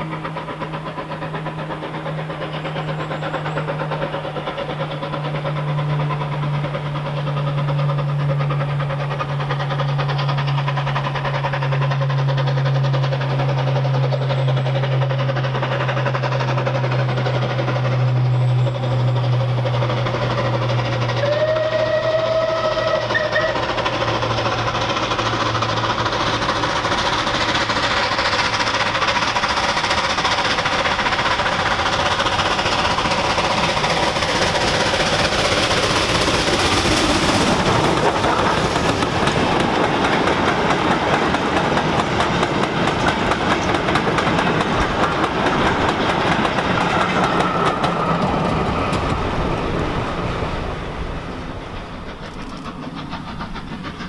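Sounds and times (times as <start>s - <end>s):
rail clatter: 0.0s - 54.0s
steam locomotive exhaust beats: 0.0s - 54.0s
steam whistle: 21.2s - 23.8s.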